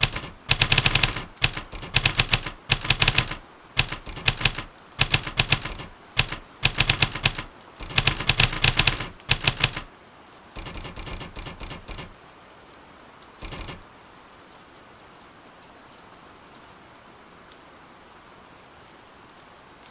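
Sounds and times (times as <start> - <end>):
typewriter keys clacking: 0.0 - 9.9, 10.6 - 12.2, 13.4 - 13.8
rain hiss: 0.0 - 19.9.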